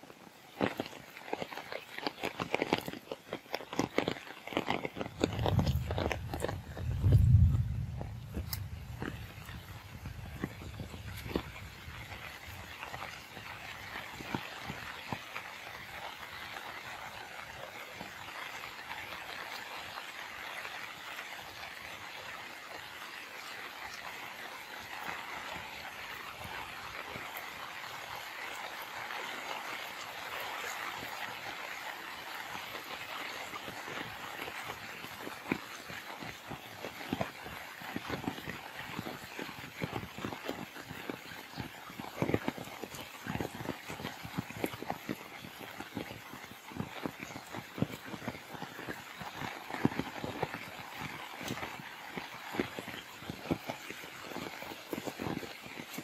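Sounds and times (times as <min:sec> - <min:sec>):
rain pattering on water: 0:00.0 - 0:56.0
hailstones pelting: 0:00.5 - 0:21.6, 0:28.4 - 0:56.0
low rumble: 0:05.2 - 0:12.6.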